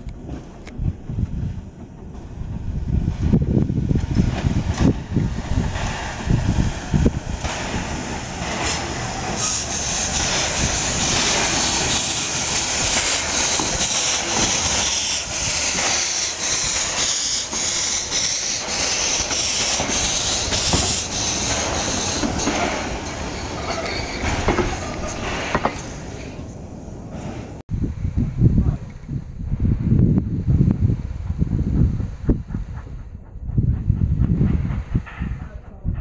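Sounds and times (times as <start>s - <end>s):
high squeal and hiss: 8.7s - 26.4s.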